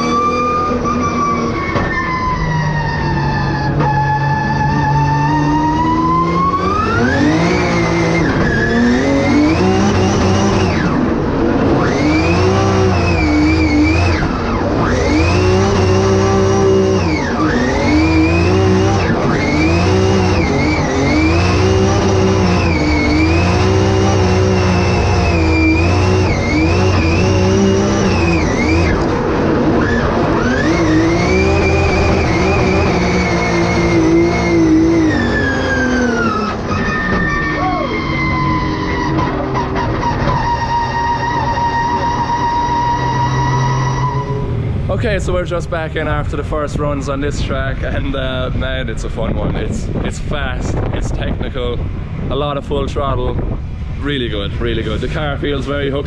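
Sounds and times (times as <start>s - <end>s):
tyre squeal: 0.0s - 11.0s, 11.8s - 29.1s, 29.7s - 44.5s
car engine revving: 0.0s - 56.0s.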